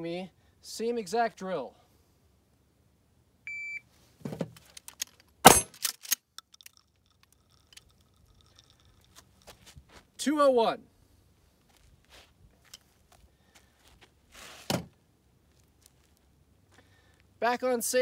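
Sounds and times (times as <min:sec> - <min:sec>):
shot timer beep: 0:03.5 - 0:03.8
shotgun being picked up clatter: 0:04.3 - 0:09.2
shotgun shot: 0:05.4 - 0:05.8.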